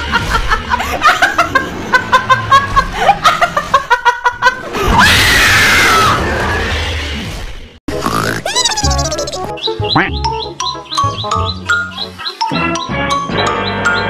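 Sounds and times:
woman laughing: 0:00.0 - 0:04.8, 0:08.4 - 0:09.5.

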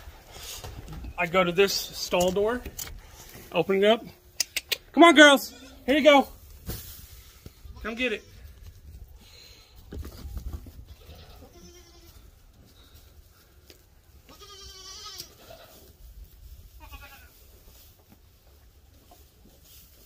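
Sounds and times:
goats bleating: 0:10.9 - 0:12.2, 0:14.2 - 0:15.8, 0:16.8 - 0:17.4.

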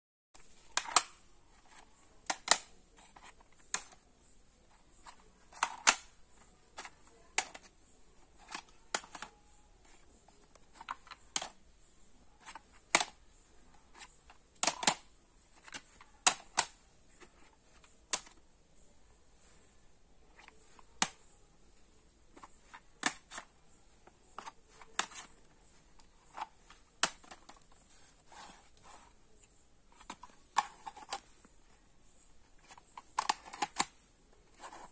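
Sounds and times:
plastic cassette cases clacking: 0:00.6 - 0:04.0, 0:04.9 - 0:07.7, 0:08.4 - 0:11.6, 0:12.4 - 0:13.2, 0:14.0 - 0:18.4, 0:22.3 - 0:27.8, 0:29.9 - 0:31.4, 0:32.6 - 0:34.9.

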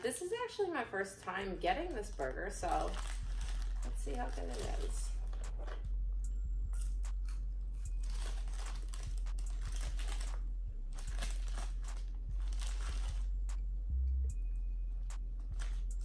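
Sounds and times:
paper wrapper crinkling: 0:01.2 - 0:05.8, 0:08.0 - 0:10.4, 0:11.0 - 0:13.4
steady low hum: 0:01.6 - 0:16.0.

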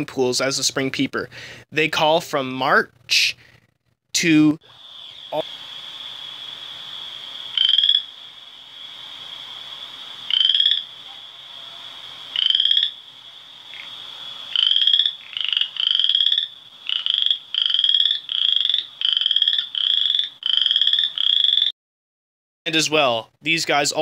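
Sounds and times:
frog calling in rising trills: 0:04.6 - 0:21.7.

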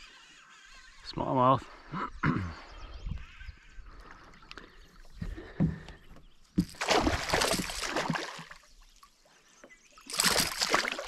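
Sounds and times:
fish thrashing and splashing: 0:06.5 - 0:08.8, 0:10.0 - 0:11.0.

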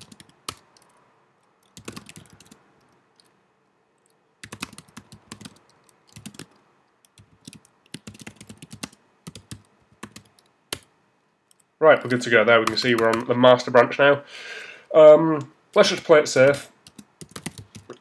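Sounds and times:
keyboard typing clicks: 0:00.0 - 0:01.0, 0:01.6 - 0:03.3, 0:04.0 - 0:10.9, 0:16.9 - 0:18.0.

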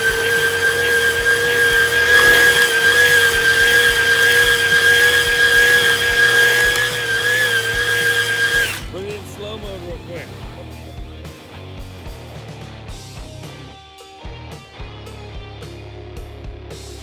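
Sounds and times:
tyres spinning on asphalt: 0:00.0 - 0:08.9
rc car motor whining: 0:00.0 - 0:09.0.

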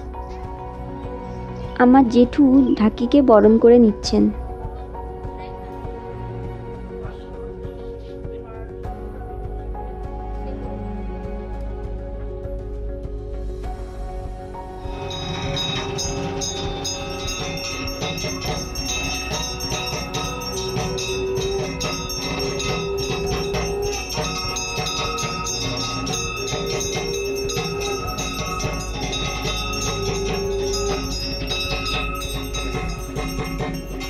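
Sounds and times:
festive drums: 0:14.2 - 0:34.0
ringing bells: 0:14.6 - 0:34.0.

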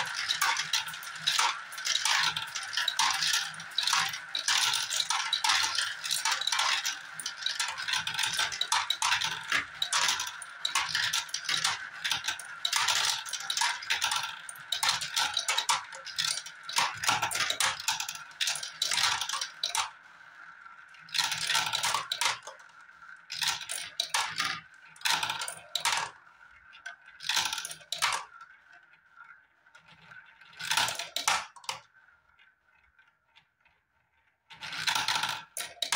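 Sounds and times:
marbles clattering in plastic run: 0:00.0 - 0:33.4, 0:34.5 - 0:35.9
marbles rolling hum: 0:00.0 - 0:35.9.

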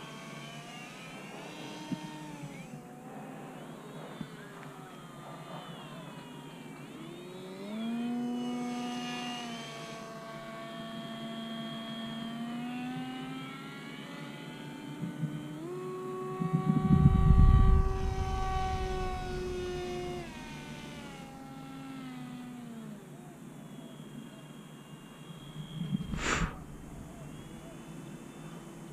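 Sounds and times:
electric propeller buzzing whine: 0:00.0 - 0:28.9
wind rumble on microphone: 0:16.4 - 0:21.2, 0:25.6 - 0:27.6.

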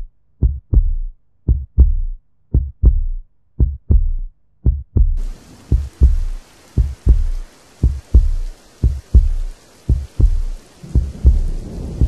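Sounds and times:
heartbeat thumps: 0:00.0 - 0:12.0
faint hiss: 0:05.2 - 0:12.0.

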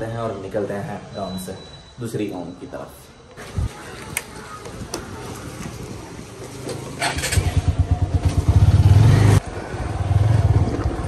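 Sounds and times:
motorcycle engine revving: 0:06.5 - 0:11.0.

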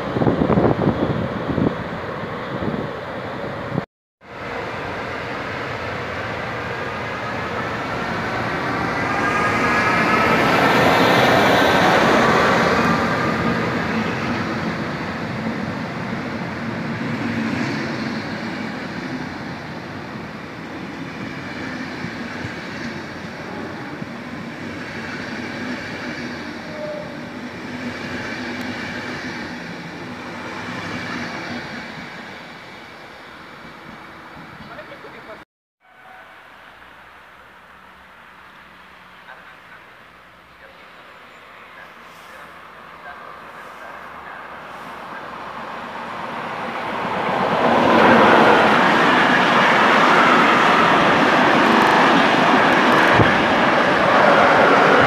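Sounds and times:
electric locomotive whining: 0:00.0 - 0:35.3, 0:36.0 - 0:55.0
train rumble: 0:36.0 - 0:55.0.

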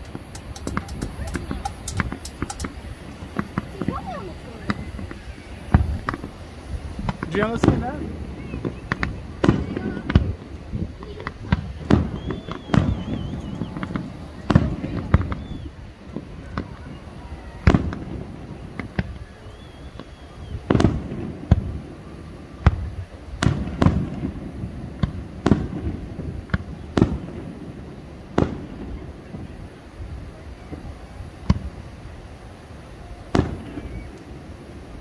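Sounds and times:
firework shells booming: 0:00.0 - 0:32.2, 0:32.8 - 0:35.0.

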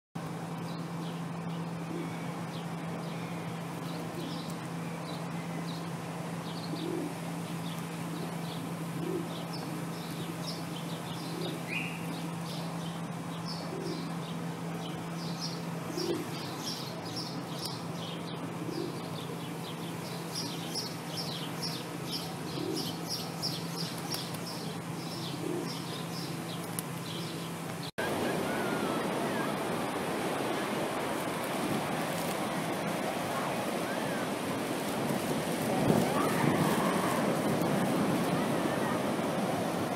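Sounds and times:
steady low hum: 0:00.2 - 0:39.9
small birds chirping: 0:00.5 - 0:35.0
pigeons cooing: 0:01.8 - 0:04.6, 0:06.5 - 0:12.6, 0:13.5 - 0:14.3, 0:14.9 - 0:27.4
surf breaking on a beach: 0:28.0 - 0:39.9.

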